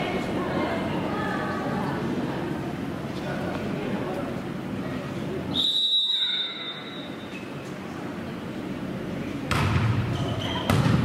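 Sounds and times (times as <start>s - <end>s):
referee's whistle blast: 5.6s - 7.2s.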